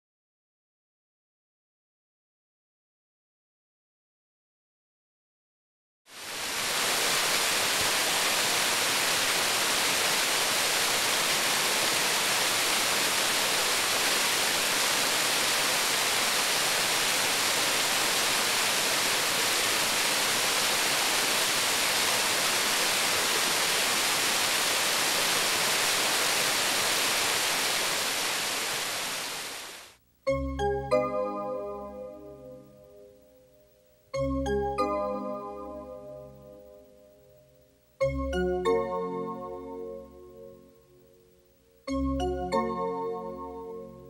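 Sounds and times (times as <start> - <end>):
waterfall rushing: 6.1 - 30.0.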